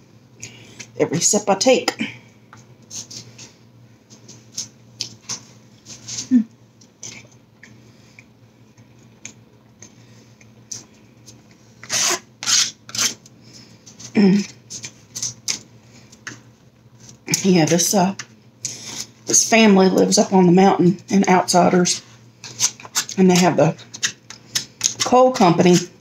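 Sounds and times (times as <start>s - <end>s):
chewing and mouth smacks: 6.8s - 11.6s.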